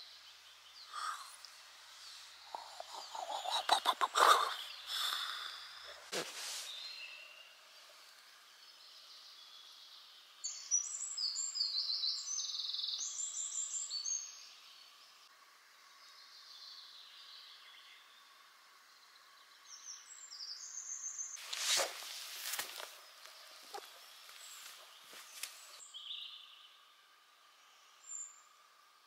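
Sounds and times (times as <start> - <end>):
faint background hiss: 0.0 - 29.0
songbird trilling: 0.6 - 5.8.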